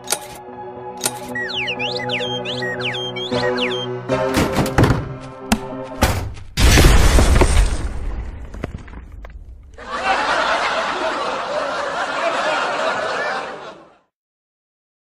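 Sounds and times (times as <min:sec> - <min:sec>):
explosion: 0:06.6 - 0:09.7
group laughing: 0:09.8 - 0:14.1.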